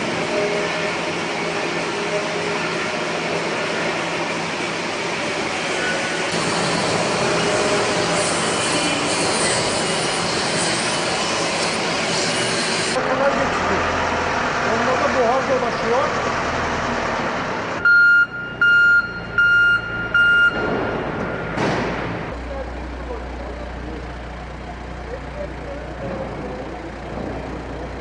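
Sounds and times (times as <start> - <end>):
machinery running: 0.0 - 28.0
metalworking: 6.0 - 13.0.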